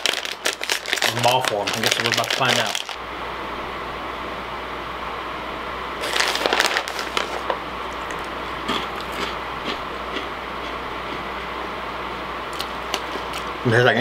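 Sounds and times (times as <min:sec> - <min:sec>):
plastic snack bag crinkling: 0:00.0 - 0:03.0, 0:06.0 - 0:08.4.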